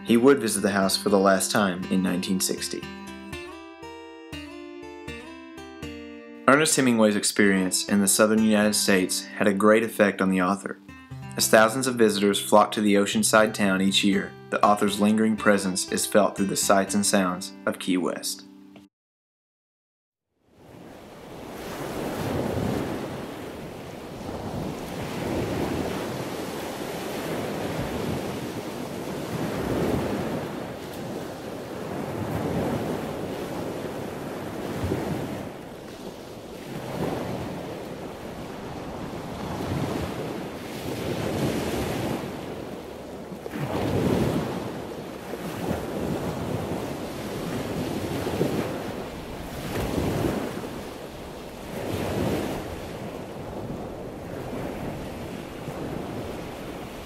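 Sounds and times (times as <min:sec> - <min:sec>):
sea waves washing in: 0:20.5 - 0:57.0
wind noise on microphone: 0:20.7 - 0:57.0.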